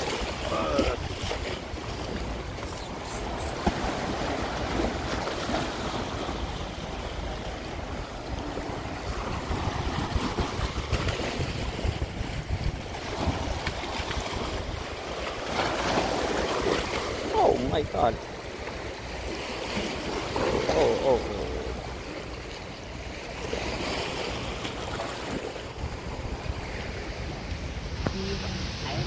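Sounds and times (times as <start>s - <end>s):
waves splashing over rocks: 0.0s - 29.0s
wind buffeting microphone: 9.0s - 15.0s.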